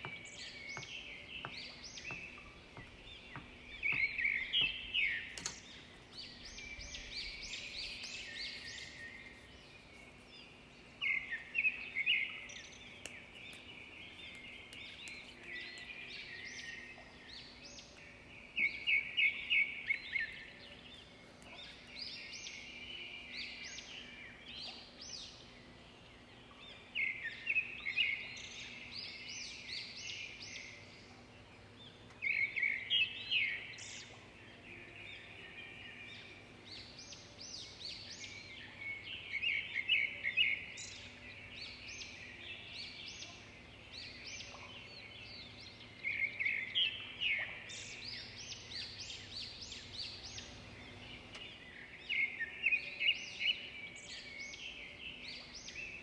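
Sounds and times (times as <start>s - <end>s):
songbird chirping: 0.0s - 56.0s.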